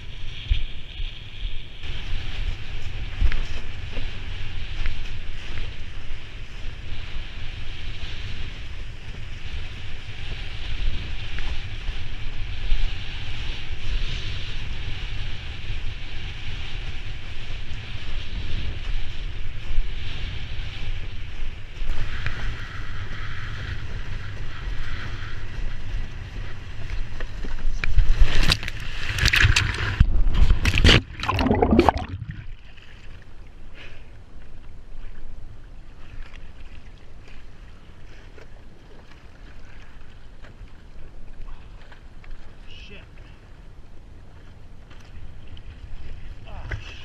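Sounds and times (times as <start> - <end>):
wind buffeting microphone: 0.0 - 33.4
water lapping around board: 26.4 - 33.7, 34.4 - 47.0
water rushing past board: 28.0 - 33.3
loud splashes: 30.6 - 32.6.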